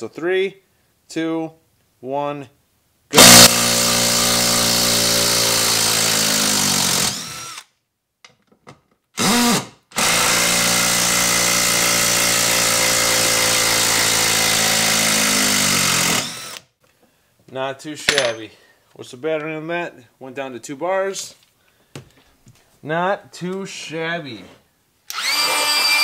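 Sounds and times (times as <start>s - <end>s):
impact driver removing screw: 3.2s - 3.6s, 25.1s - 26.0s.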